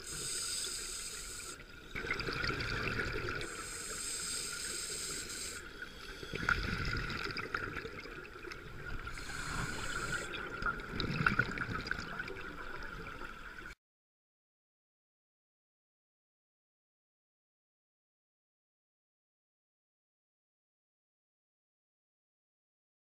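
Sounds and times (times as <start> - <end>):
diver inhaling through regulator: 0.0 - 1.6, 3.4 - 6.9, 9.1 - 10.5
exhaled bubbles gurgling: 1.4 - 4.1, 5.4 - 13.7.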